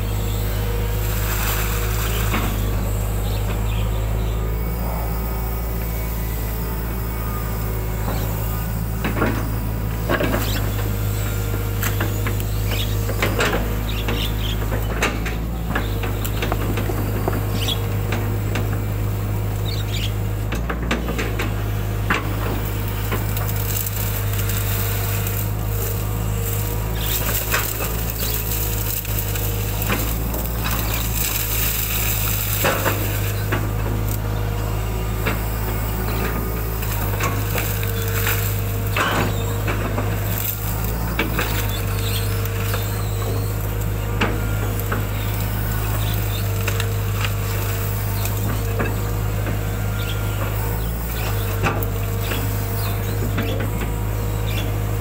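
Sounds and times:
engine whine: 0:00.0 - 0:55.0
excavator diesel engine running: 0:00.0 - 0:55.0
bucket scraping and brush snapping: 0:22.2 - 0:34.2.

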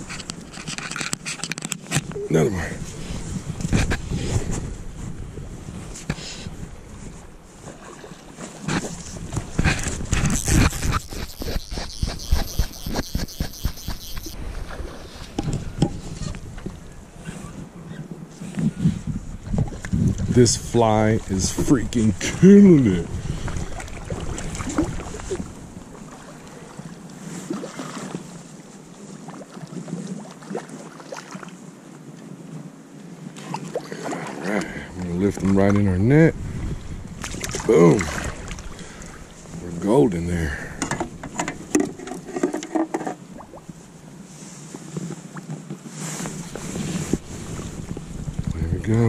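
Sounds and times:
wind on microphone: 0:00.0 - 0:30.2, 0:32.4 - 0:39.6, 0:43.2 - 0:49.0
water gently lapping: 0:02.4 - 0:20.2, 0:21.1 - 0:32.4, 0:33.0 - 0:40.0
fish splashing in water: 0:09.6 - 0:15.1.

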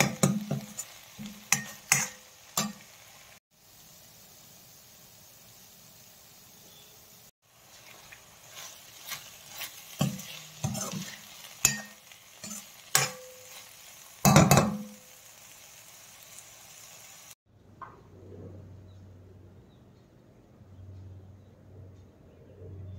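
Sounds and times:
spoon clinking and scraping pan: 0:00.0 - 0:03.0, 0:07.7 - 0:15.0
vegetables sizzling in a pan: 0:00.0 - 0:17.4.

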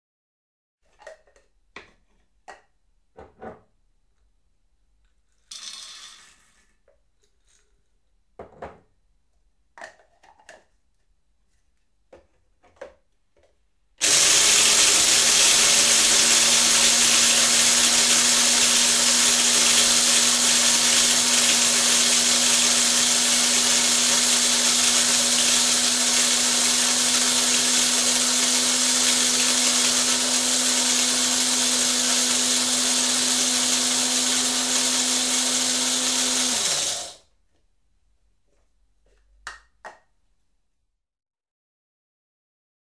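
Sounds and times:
coffee grinder motor whirring: 0:14.0 - 0:37.2.

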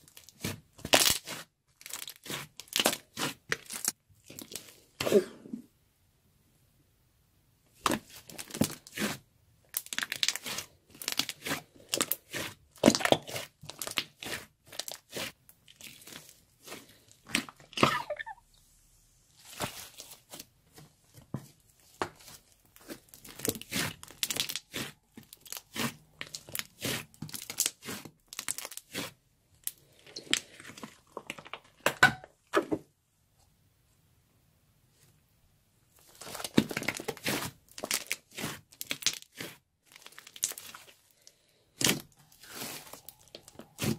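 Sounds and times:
sticky slime clicking and crackling: 0:09.7 - 0:16.3, 0:23.1 - 0:31.8, 0:36.4 - 0:40.8.

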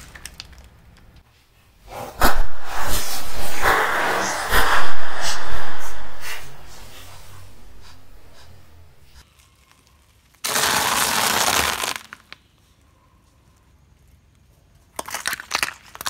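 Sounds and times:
car tyre crushing plastic cups: 0:14.9 - 0:16.0.

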